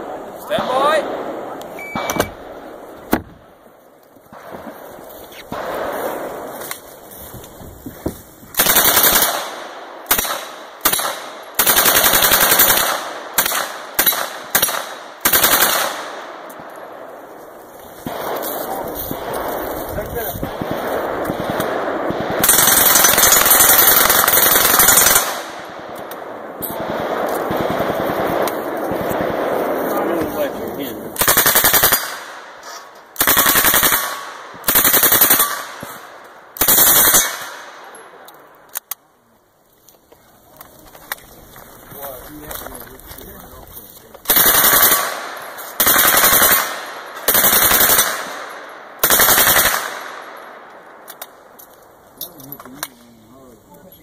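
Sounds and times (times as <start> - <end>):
gunfire echo: 0.0 - 3.6, 4.3 - 7.1, 8.5 - 38.6, 44.2 - 51.6
submachine gun bursts: 8.6 - 9.4, 22.4 - 25.4, 44.3 - 45.1, 45.8 - 48.2
submachine gun firing full-auto: 8.6 - 16.3, 20.4 - 25.6, 26.8 - 29.6, 31.2 - 32.4, 33.2 - 35.8, 36.6 - 37.7, 44.3 - 50.2.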